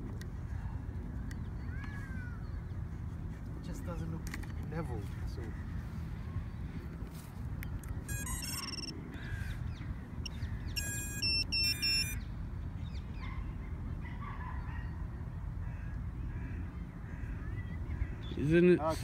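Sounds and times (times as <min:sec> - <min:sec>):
high electronic beeps: 0:08.1 - 0:08.9, 0:10.2 - 0:12.2.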